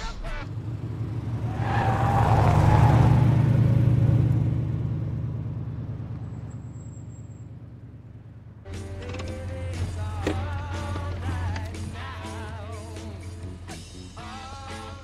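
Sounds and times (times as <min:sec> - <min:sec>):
suv driving past: 0:00.5 - 0:08.6.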